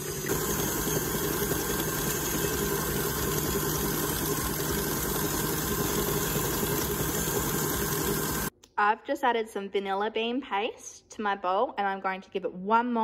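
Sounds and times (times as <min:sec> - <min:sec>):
stand mixer motor humming: 0:00.0 - 0:08.5
wire whisk beating mixture: 0:00.0 - 0:08.5.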